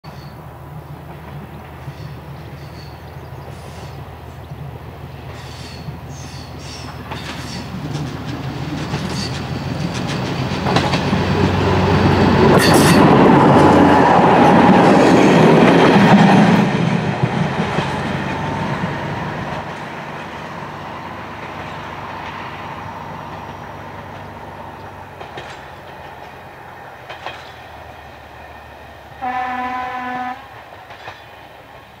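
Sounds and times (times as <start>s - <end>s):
diesel railcar engine running: 0.0s - 32.0s
train wheels clicking over rail joints: 0.1s - 29.2s, 30.4s - 32.0s
train horn blast: 29.2s - 30.6s.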